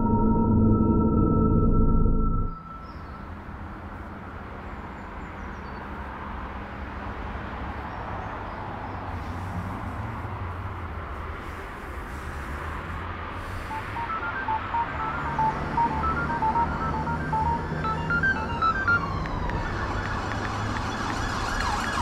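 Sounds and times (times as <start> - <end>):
phone keypad beeps: 13.7 - 19.0.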